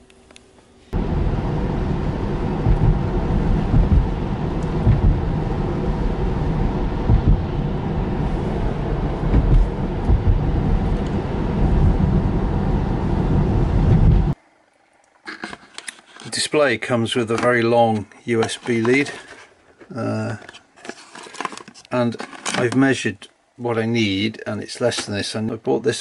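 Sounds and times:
car bumps: 1.0 - 5.9, 7.0 - 12.6, 13.4 - 14.4
tyre and wind road noise: 1.0 - 14.4.

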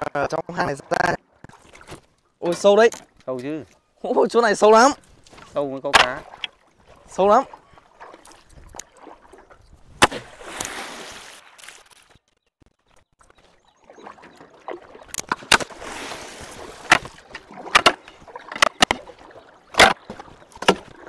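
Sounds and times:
water sloshing and splashing: 0.3 - 21.0
pole knocking against boat: 19.7 - 21.0.

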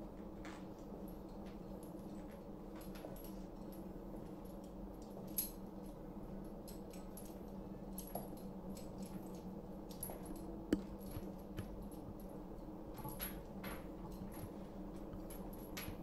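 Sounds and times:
faint steady hum: 0.0 - 16.0
chain clinking: 4.4 - 6.0.

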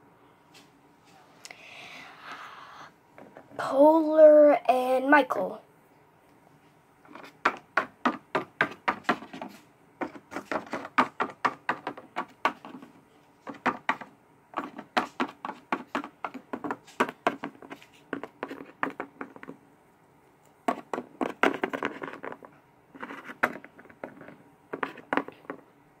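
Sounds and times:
plastic toys tapping on wooden table: 7.1 - 12.9, 13.5 - 19.6, 20.7 - 25.6.

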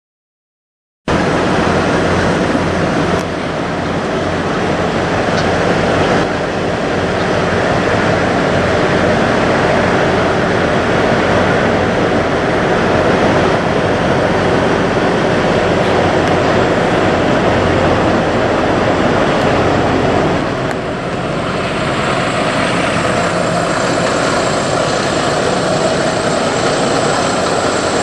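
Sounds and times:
truck engine idling: 1.2 - 28.0.

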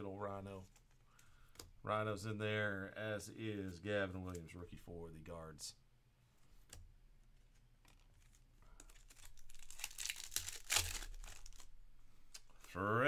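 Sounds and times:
foil wrapper crinkling and tearing: 7.9 - 12.8.

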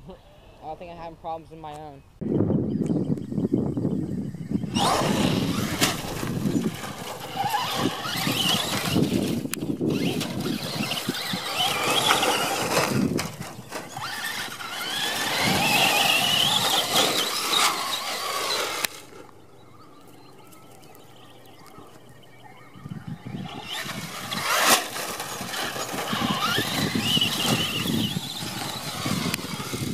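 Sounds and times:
electric motor whining: 4.6 - 20.0, 22.8 - 29.9
tyres rattling over gravel: 4.7 - 22.2, 23.2 - 29.9.

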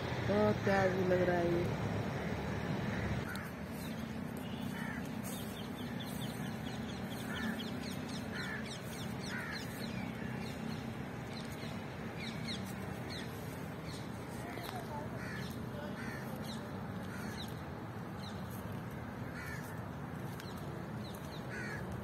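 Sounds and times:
crows cawing: 2.9 - 10.7, 13.0 - 17.6, 18.2 - 20.5, 21.1 - 22.0
small birds chirping: 2.9 - 22.0.

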